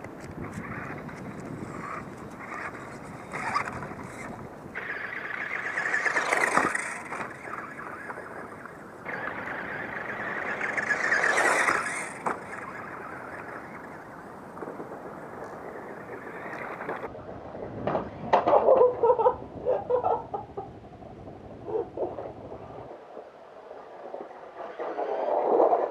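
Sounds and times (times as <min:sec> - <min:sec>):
toy car electric motor whining: 0:00.4 - 0:17.1.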